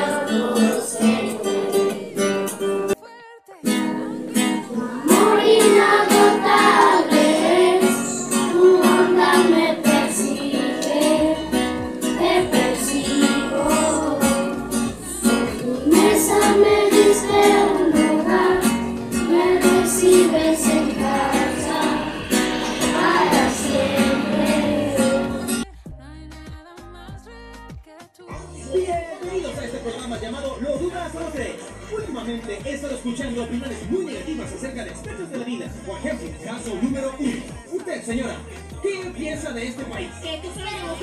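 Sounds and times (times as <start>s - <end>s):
children singing: 0.0s - 3.0s, 3.9s - 25.6s
strummed acoustic guitar: 0.0s - 3.0s, 3.7s - 25.7s.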